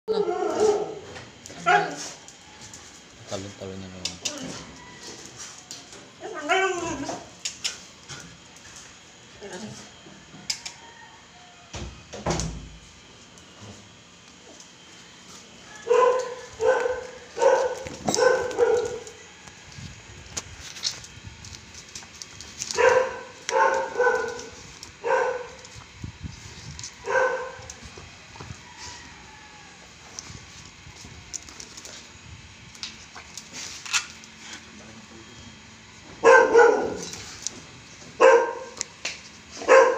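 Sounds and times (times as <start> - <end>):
dog barking: 0.1 - 1.0, 1.6 - 2.0, 15.8 - 19.1, 22.7 - 25.6, 27.0 - 27.6, 36.2 - 37.2, 38.2 - 38.8, 39.6 - 39.9.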